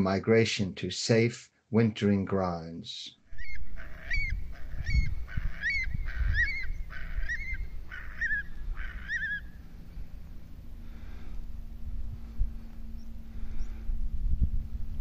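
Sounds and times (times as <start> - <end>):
curlew calling: 3.3 - 11.4
low rumble: 3.3 - 15.0.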